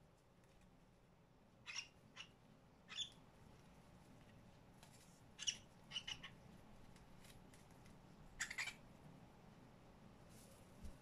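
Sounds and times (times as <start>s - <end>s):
cockatiel chirping: 1.6s - 3.2s, 5.4s - 6.5s, 8.4s - 8.8s.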